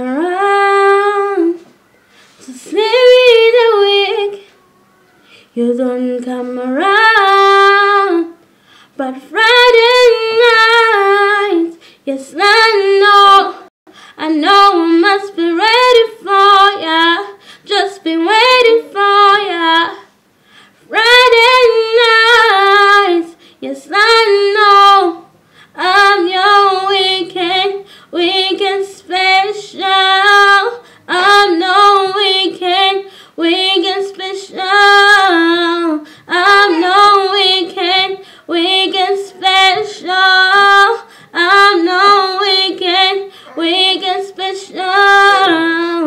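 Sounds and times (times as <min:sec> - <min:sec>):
woman singing solo: 0:28.2 - 0:46.0.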